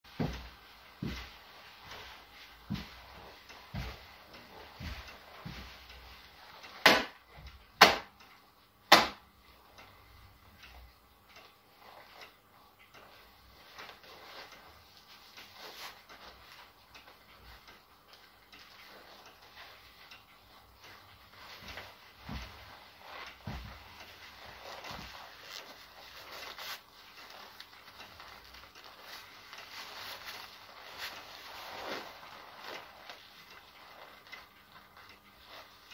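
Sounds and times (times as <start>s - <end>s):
leather gloves slapping palm: 8.9s - 9.2s
leather gloves rubbing and squeaking: 13.6s - 16.8s, 18.6s - 35.9s.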